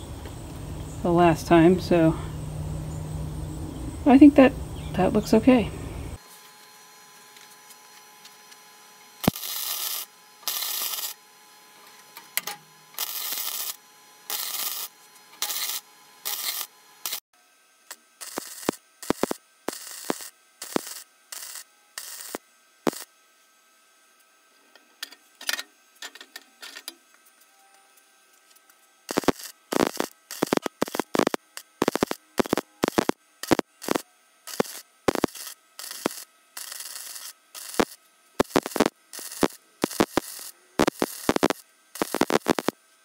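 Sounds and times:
welding arc bursts: 9.2 - 23.2, 29.0 - 42.8.

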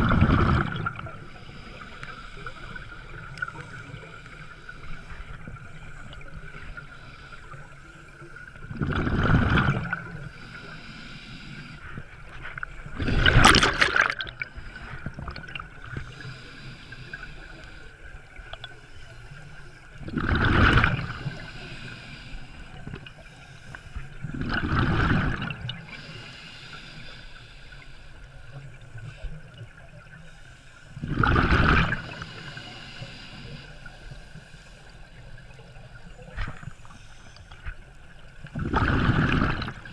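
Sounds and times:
underwater bubbling exhalations: 0.0 - 1.3, 8.7 - 10.2, 12.9 - 14.5, 20.0 - 21.4, 24.3 - 25.8, 31.0 - 32.2, 38.5 - 39.9
faint steady tone: 14.0 - 20.1, 25.3 - 31.1, 31.7 - 38.6.

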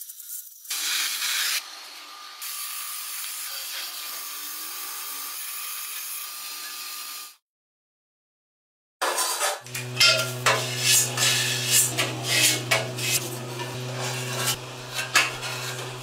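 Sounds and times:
welding torch flame hissing: 9.7 - 16.0.

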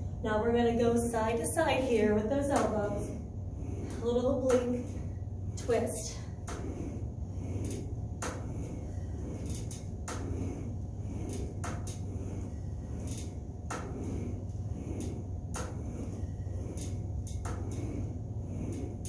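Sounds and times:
low hum: 0.0 - 19.0
exercise machine clicks and clacks: 2.2 - 3.0, 9.4 - 10.3, 11.3 - 12.1, 13.0 - 17.8.

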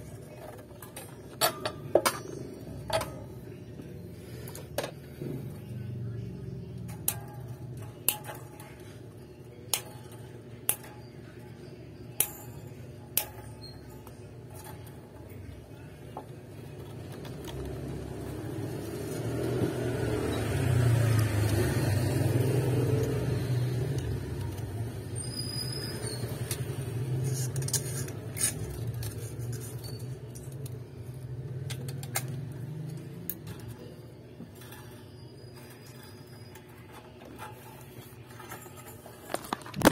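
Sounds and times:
vehicle engine passing by: 17.7 - 24.6.

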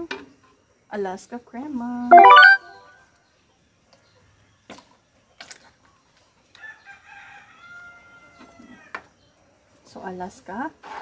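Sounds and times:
rooster crowing: 6.6 - 8.9.

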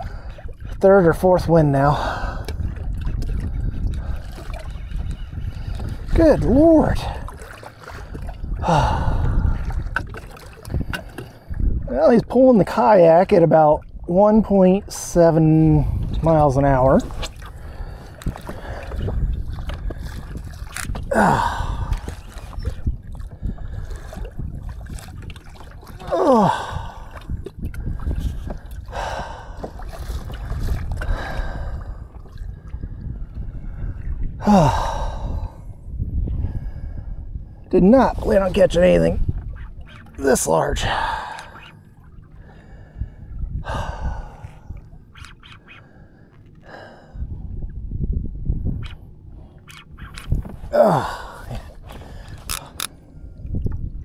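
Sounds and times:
wind and water rumble: 0.0 - 54.0
man groaning: 21.1 - 21.8, 26.0 - 26.8, 34.4 - 34.8, 50.7 - 51.5
heavy breathing and gasping: 21.1 - 22.1, 26.0 - 27.2, 50.6 - 52.9.

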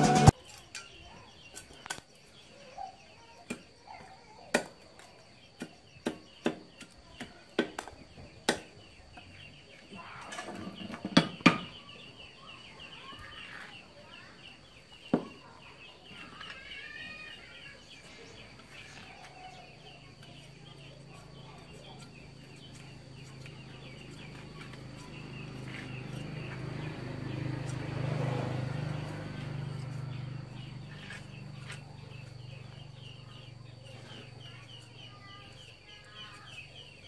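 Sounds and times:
machete chopping bamboo on wood: 4.5 - 4.8, 5.6 - 8.8
faint bird calls: 8.2 - 27.5.

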